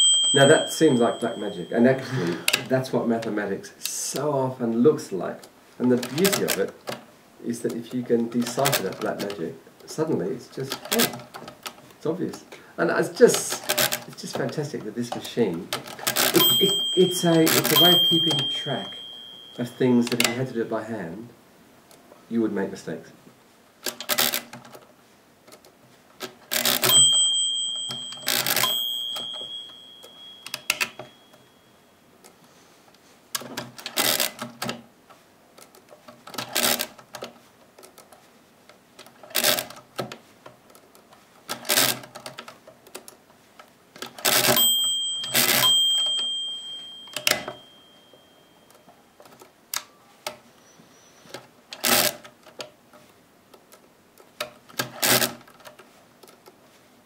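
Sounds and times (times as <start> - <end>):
ringing bell note: 0.0 - 2.2, 16.4 - 20.0, 26.8 - 32.0, 44.6 - 48.8
mechanical calculator clicking: 13.3 - 14.1, 15.7 - 20.4, 26.2 - 31.1, 33.4 - 34.8, 35.6 - 38.0, 39.0 - 39.8, 41.5 - 43.1, 44.0 - 47.8, 51.3 - 52.7, 54.3 - 56.4.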